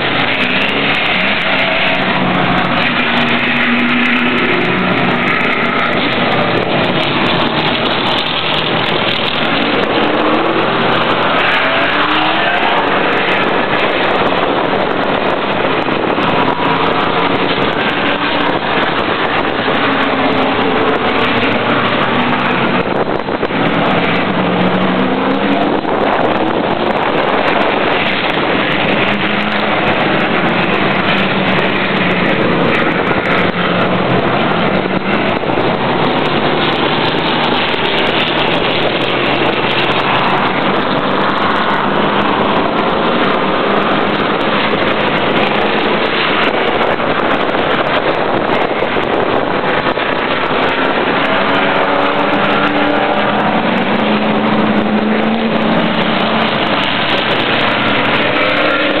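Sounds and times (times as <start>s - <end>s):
race car engine at speed: 0.0s - 59.0s.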